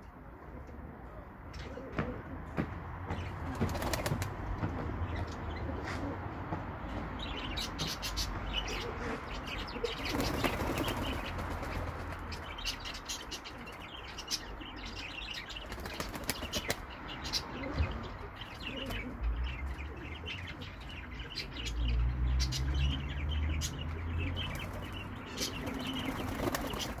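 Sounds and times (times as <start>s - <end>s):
pigeons flapping wings: 3.4s - 4.7s, 10.0s - 12.4s, 15.6s - 16.8s, 25.5s - 27.0s.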